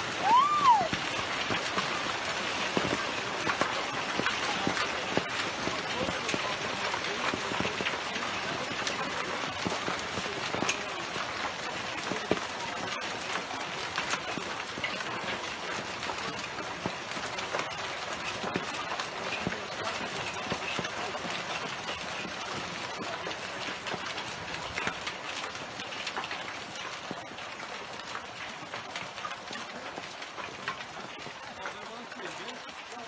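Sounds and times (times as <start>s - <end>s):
hiss of falling water: 0.0s - 20.6s
hailstones clattering: 0.0s - 33.0s.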